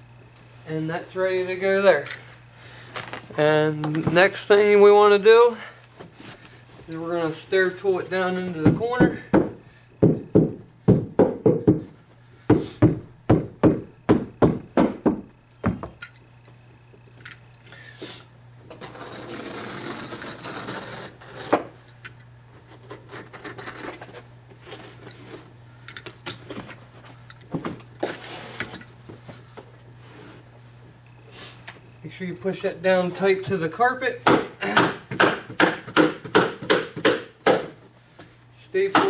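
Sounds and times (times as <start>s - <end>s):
hammer knocking on stair tool: 8.6s - 16.0s.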